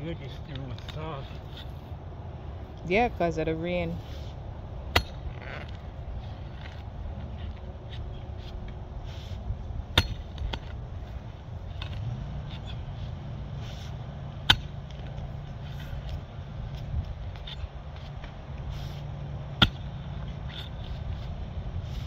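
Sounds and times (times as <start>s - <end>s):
steady low rumble: 0.0s - 22.0s
light knocks and scrapes: 0.1s - 2.0s, 14.9s - 22.0s
pickaxe striking tree stump: 4.9s - 5.3s, 9.9s - 10.8s, 14.4s - 15.0s, 19.5s - 20.8s.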